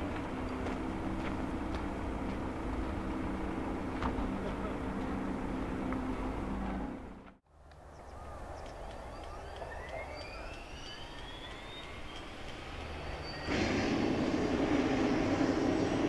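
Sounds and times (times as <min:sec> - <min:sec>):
helicopter engines and rotor: 0:08.0 - 0:16.0.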